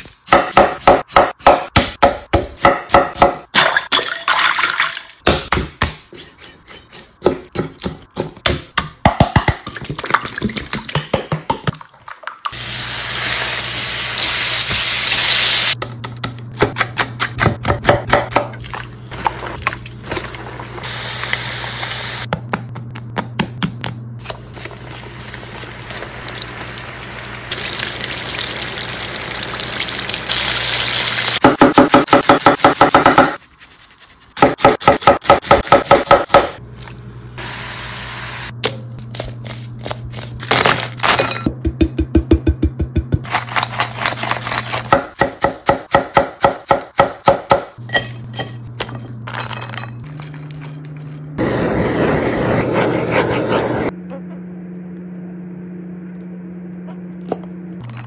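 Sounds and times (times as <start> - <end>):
chicken deep-frying in oil: 11.9 - 15.8, 24.2 - 31.4
bacon sizzling in pan: 12.5 - 15.8, 24.9 - 31.4
steady low hum: 47.8 - 58.0.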